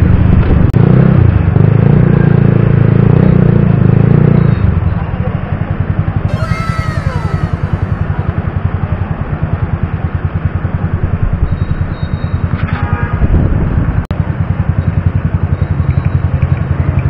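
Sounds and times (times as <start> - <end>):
short high tone: 6.3 - 8.8.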